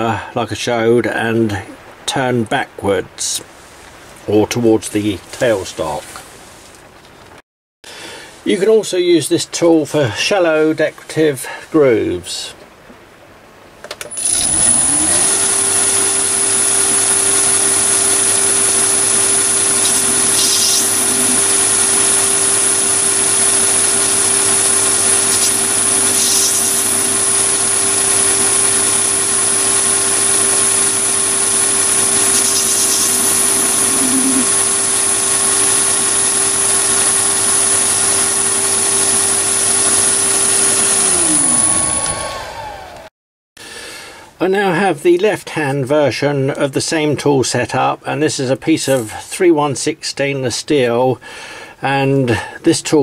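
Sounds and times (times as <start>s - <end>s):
cutting hiss: 14.1s - 42.0s
lathe running with high whine: 14.1s - 43.1s.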